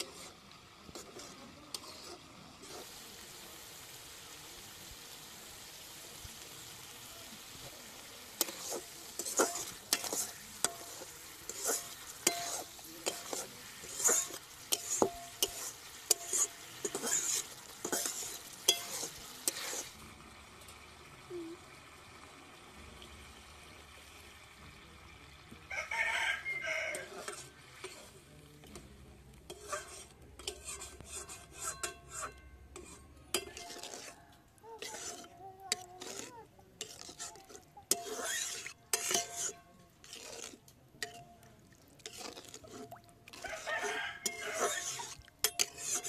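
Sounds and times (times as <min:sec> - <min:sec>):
utensil stirring in a pot: 0:00.0 - 0:20.8, 0:25.8 - 0:46.0
clinks and knocks against pot: 0:12.2 - 0:13.4, 0:31.6 - 0:33.8, 0:45.4 - 0:46.0.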